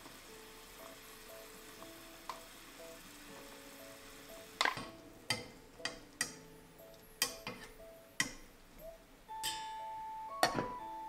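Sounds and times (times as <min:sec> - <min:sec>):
soft background music: 0:00.0 - 0:11.0
metal tongs tapping saucepan: 0:04.6 - 0:06.4, 0:07.2 - 0:08.4.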